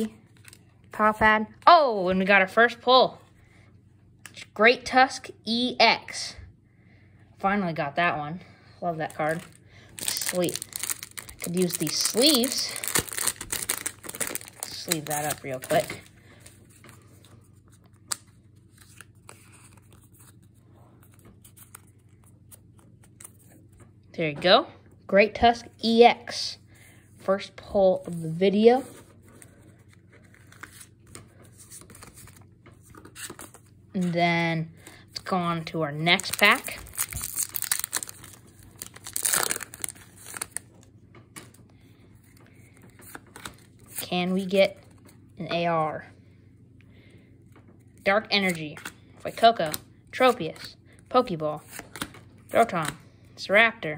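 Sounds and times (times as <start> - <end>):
foil wrapper crinkling and tearing: 9.2 - 16.1, 36.2 - 40.8
plastic sleeve scraping and rustling: 9.2 - 17.1, 36.2 - 40.6.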